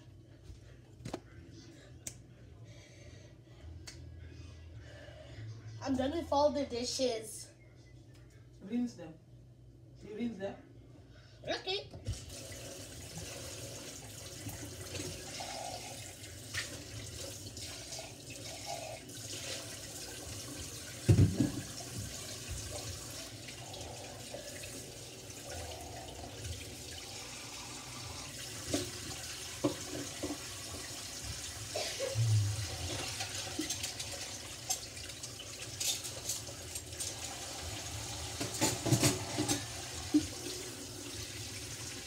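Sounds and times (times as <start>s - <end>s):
faucet running into metal sink: 25.4s - 42.0s
dishes knocking: 38.4s - 39.7s.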